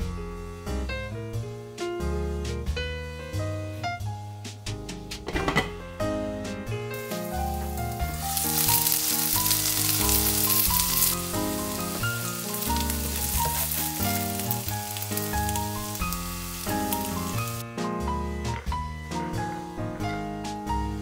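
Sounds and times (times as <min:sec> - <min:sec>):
background music: 0:00.0 - 0:21.0
patties sizzling in oil: 0:06.9 - 0:17.6.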